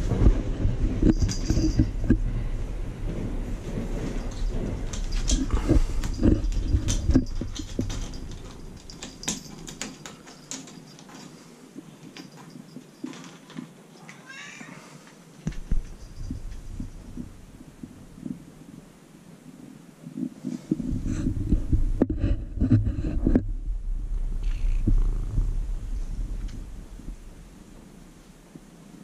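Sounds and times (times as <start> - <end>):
kitten claws scratching wood: 4.2 - 11.3.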